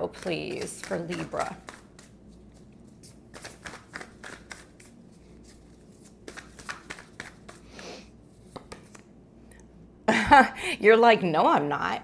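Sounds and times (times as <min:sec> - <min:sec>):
cards being shuffled: 0:00.1 - 0:09.1.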